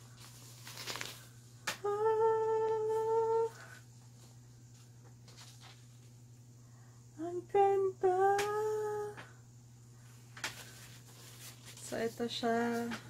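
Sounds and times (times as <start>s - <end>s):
fabric rustling: 0.1s - 1.3s
woman humming a note: 1.8s - 3.8s, 7.2s - 9.2s.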